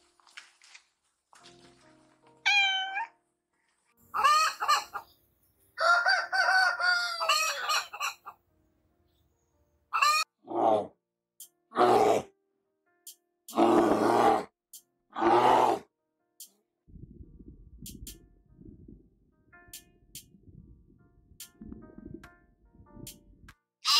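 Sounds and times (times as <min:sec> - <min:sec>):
cat meowing: 0:02.4 - 0:03.2
rooster crowing: 0:05.8 - 0:08.0.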